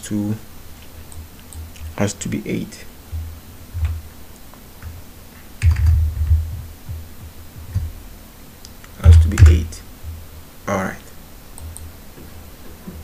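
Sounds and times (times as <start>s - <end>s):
computer keyboard typing: 5.6s - 6.7s.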